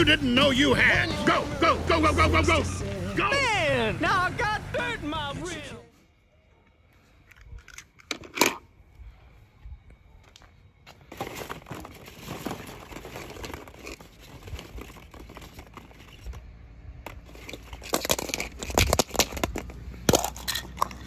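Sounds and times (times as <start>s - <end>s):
plastic balls clattering: 11.0s - 21.0s.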